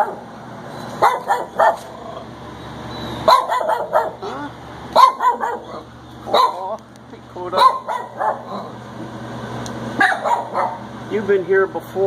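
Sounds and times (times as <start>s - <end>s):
dogs barking: 0.0s - 0.3s, 0.9s - 2.3s, 3.1s - 6.8s, 7.5s - 8.8s, 9.9s - 11.0s.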